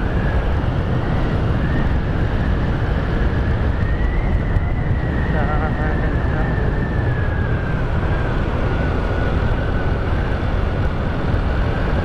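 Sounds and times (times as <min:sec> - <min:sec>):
scooter road noise: 0:00.0 - 0:12.0
wind over microphone: 0:00.0 - 0:12.0
faint high whine: 0:01.5 - 0:08.3.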